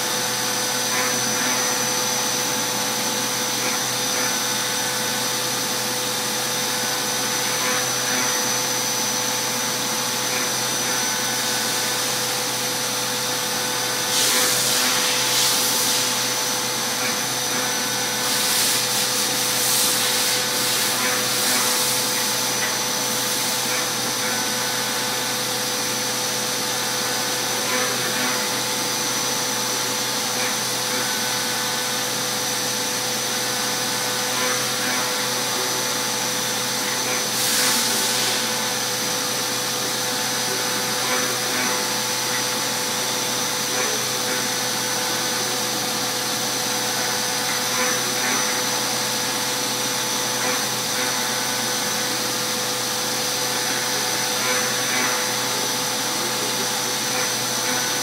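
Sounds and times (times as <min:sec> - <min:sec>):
milling machine spindle whine: 0:00.0 - 0:58.0.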